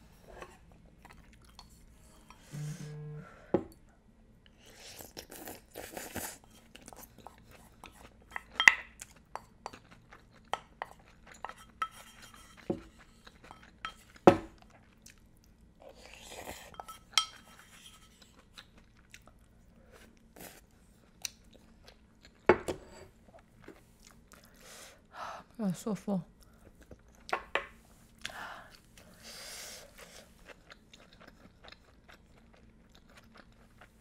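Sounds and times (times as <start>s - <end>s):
chewing: 0.7s - 2.3s, 4.9s - 22.5s, 29.8s - 34.0s.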